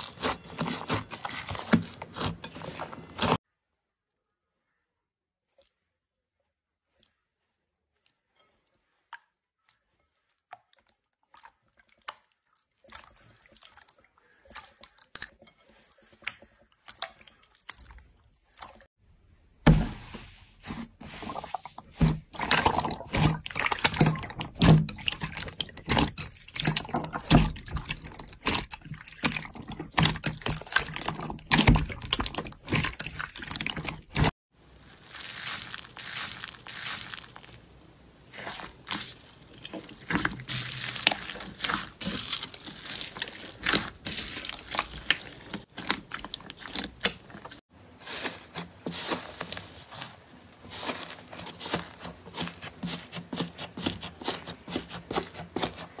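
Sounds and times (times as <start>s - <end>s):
slime squelching and popping: 21.3s - 37.7s, 38.3s - 49.6s.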